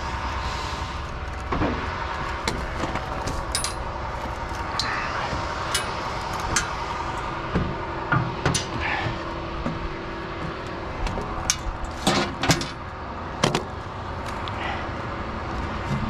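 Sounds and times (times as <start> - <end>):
engine idling: 0.0 - 16.0
metallic clinks and knocks: 3.3 - 4.0, 5.6 - 6.8, 8.2 - 8.9.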